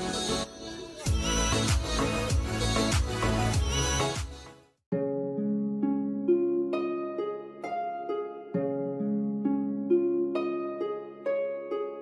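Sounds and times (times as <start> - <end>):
gentle plucked melody: 4.9 - 12.0.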